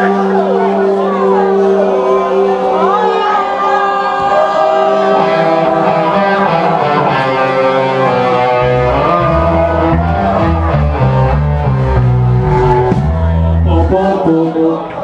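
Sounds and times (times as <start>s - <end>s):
electric guitar bending notes: 4.9s - 14.3s
bass guitar: 4.9s - 14.4s.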